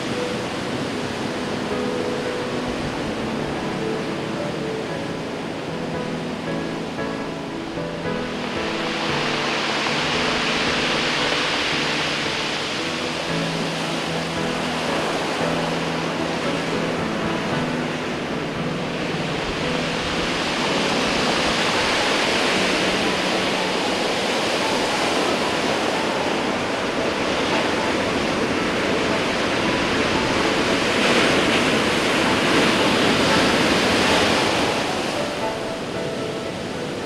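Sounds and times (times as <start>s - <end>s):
surf breaking on rocky shore: 0.0s - 37.0s.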